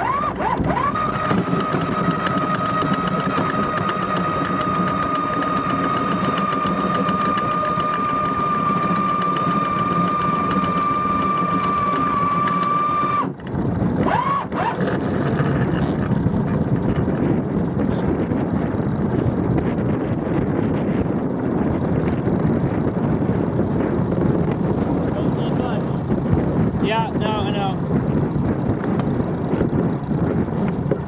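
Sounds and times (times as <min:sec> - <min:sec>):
steady rushing noise: 0:15.1 - 0:31.0.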